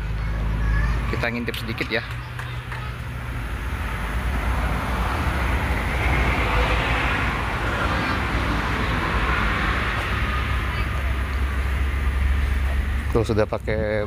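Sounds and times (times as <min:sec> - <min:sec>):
low engine rumble: 0:00.0 - 0:14.0.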